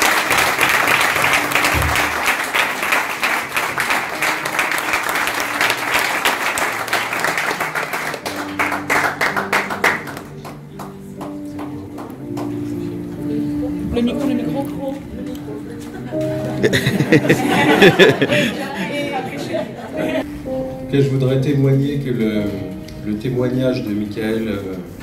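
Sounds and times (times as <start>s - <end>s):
congregation applauding: 0.0s - 12.8s
soft music: 0.0s - 25.0s.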